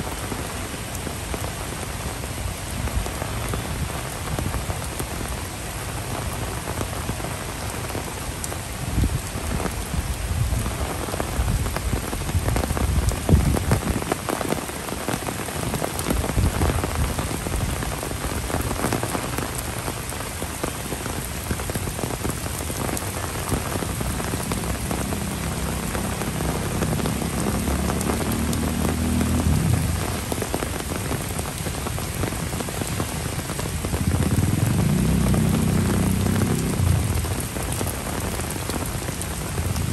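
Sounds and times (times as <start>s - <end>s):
rain on paving and trees: 0.0s - 39.9s.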